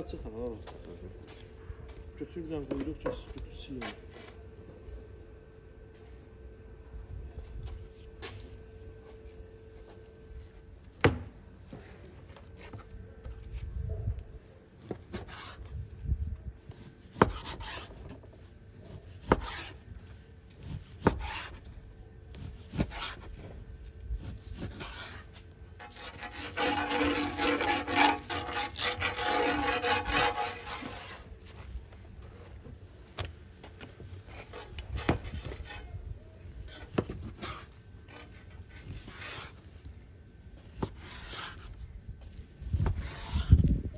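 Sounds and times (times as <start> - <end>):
knife sawing through meat: 25.8 - 31.2, 43.0 - 43.6.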